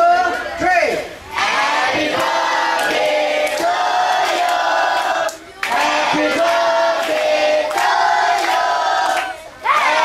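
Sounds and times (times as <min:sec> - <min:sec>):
crowd cheering and shouting: 0:08.0 - 0:10.0.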